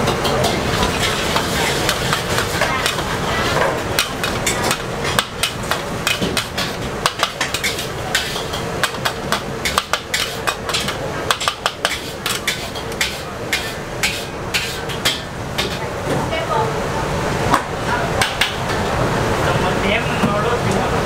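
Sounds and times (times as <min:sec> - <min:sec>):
spatula clanking against a wok: 0:00.0 - 0:15.9
frying hiss: 0:00.0 - 0:21.0.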